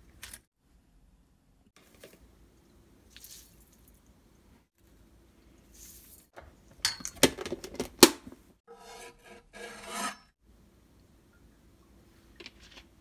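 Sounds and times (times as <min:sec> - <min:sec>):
knife scraping cutting board: 0:08.7 - 0:10.3.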